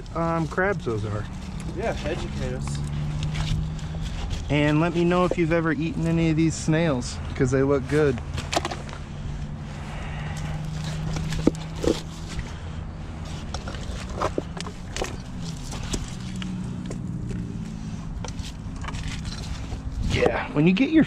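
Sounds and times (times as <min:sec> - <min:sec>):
rocks knocking and clacking: 0:10.6 - 0:12.4, 0:13.4 - 0:17.4.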